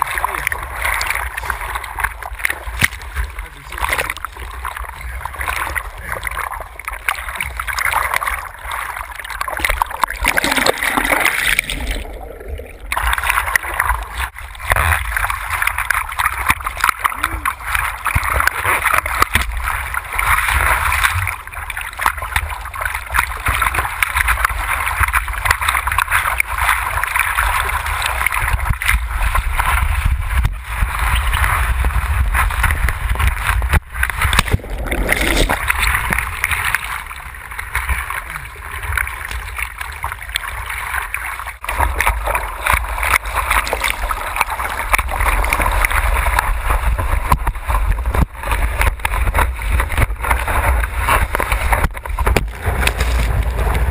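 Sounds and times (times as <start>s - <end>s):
whitewater rushing and splashing: 0.0s - 53.9s
wind on microphone: 27.5s - 37.4s, 45.0s - 53.9s.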